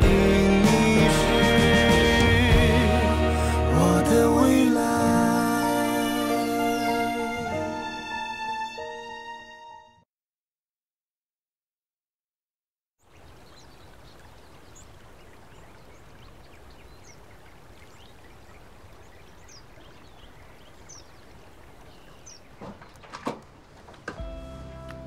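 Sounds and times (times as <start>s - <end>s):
birds chirping: 13.0s - 25.0s
sharp clicks and knocks: 22.6s - 24.3s.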